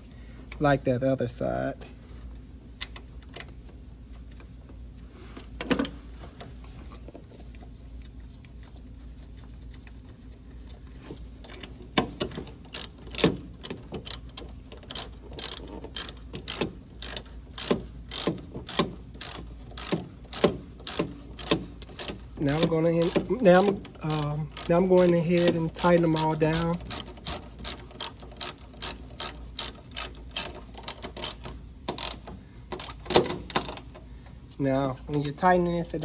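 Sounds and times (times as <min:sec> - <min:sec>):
hand ratchet clicking: 0:12.1 - 0:34.0.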